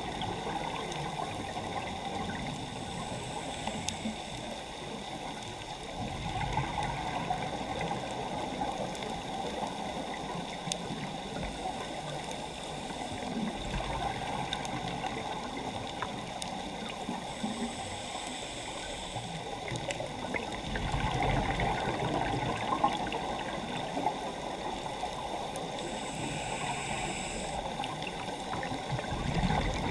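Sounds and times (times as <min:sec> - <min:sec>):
muffled underwater rush: 0:00.0 - 0:29.9
faint clicks: 0:01.8 - 0:05.8, 0:07.8 - 0:20.5.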